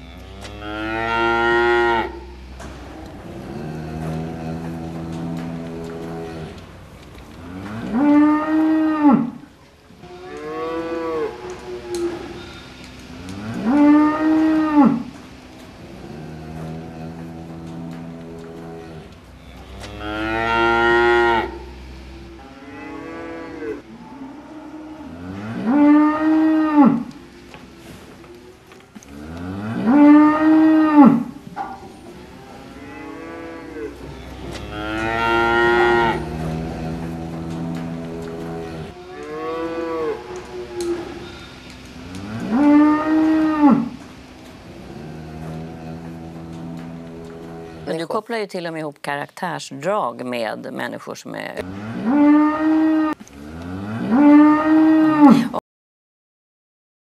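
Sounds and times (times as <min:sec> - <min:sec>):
cow mooing: 0:00.0 - 0:06.6, 0:07.4 - 0:15.2, 0:15.9 - 0:27.2, 0:28.4 - 0:44.0, 0:51.6 - 0:55.6.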